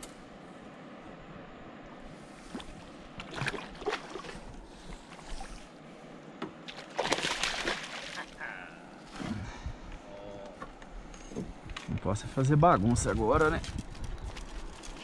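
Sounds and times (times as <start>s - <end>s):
short splashes and knocks: 2.5s - 4.5s, 6.4s - 8.4s
fish thrashing in water: 3.2s - 4.5s, 6.7s - 8.4s
loud splash: 6.7s - 8.3s.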